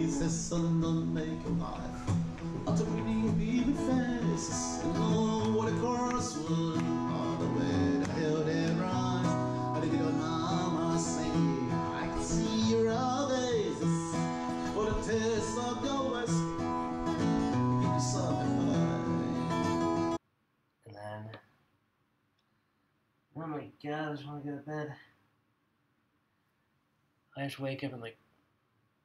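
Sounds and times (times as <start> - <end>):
man singing: 0.0 - 19.6
acoustic guitar: 0.0 - 20.2.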